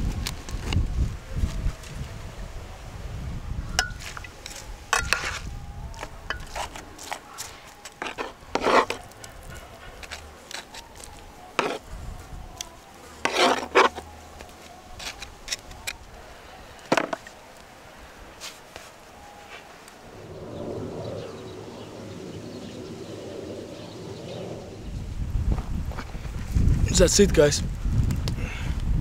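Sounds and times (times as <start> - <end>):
metal tongs scraping on wood: 3.8 - 5.4, 6.0 - 11.9, 12.6 - 14.1, 15.0 - 16.0, 16.8 - 17.3.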